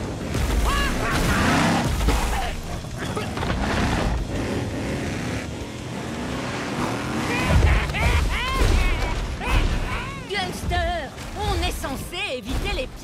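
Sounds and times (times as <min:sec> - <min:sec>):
truck engine noise: 0:00.0 - 0:10.3.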